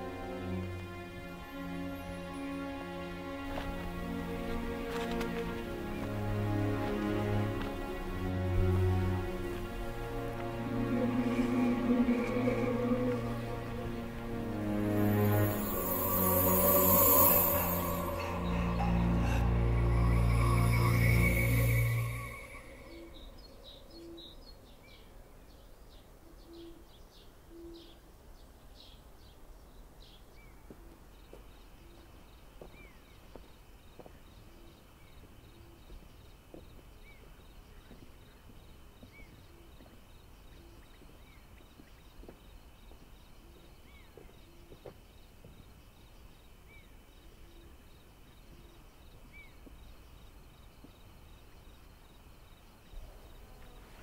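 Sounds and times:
high insect drone: 0.0s - 24.4s
birds chirping: 5.6s - 28.0s
low rumble: 9.4s - 24.1s
low hoots: 10.2s - 14.4s.

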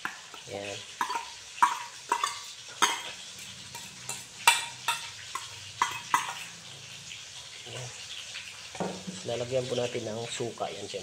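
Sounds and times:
steel bowl clinking on ceramic plate: 1.0s - 6.5s.

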